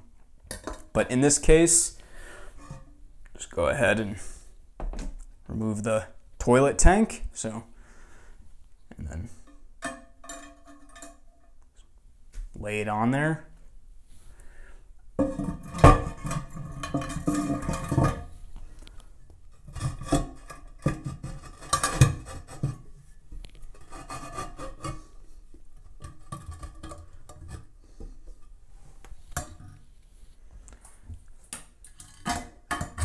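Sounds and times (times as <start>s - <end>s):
porcelain lid scraping and knocking: 9.4s - 11.5s, 15.2s - 18.4s, 19.5s - 25.2s, 25.8s - 28.6s, 32.0s - 33.0s.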